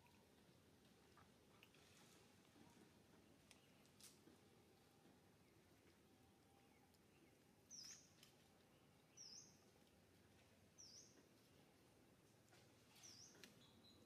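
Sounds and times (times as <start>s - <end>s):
small bird chirping: 6.6s - 9.7s, 10.8s - 11.2s, 12.9s - 14.0s.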